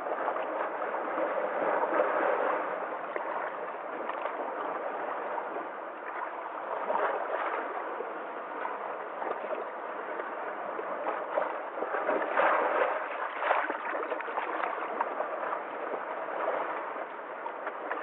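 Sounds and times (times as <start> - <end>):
waves washing among rocks: 0.0 - 18.0.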